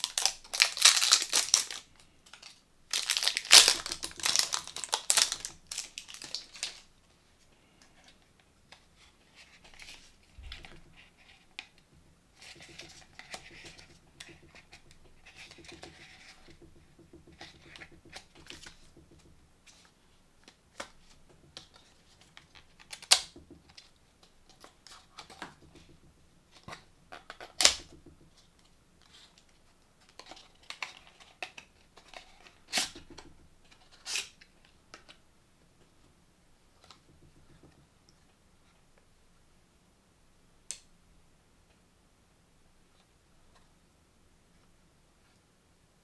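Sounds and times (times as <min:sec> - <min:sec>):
sharp cardboard snaps: 0:27.3 - 0:28.0.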